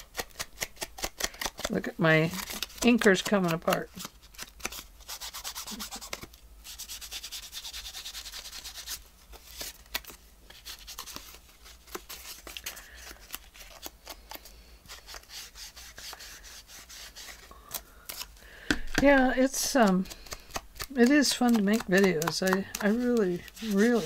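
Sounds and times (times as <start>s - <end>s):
ink applicator rubbing paper: 19.4s - 24.0s.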